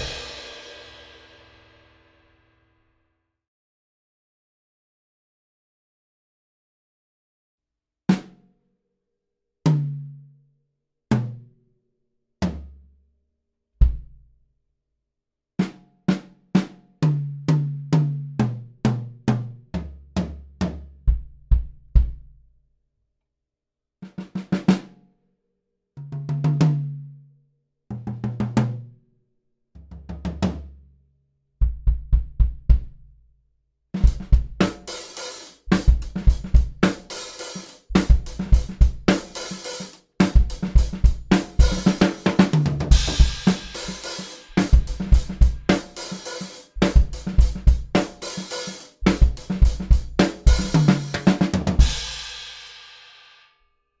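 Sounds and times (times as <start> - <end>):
drum kit playing solo: 0.0 - 2.0, 34.0 - 53.4.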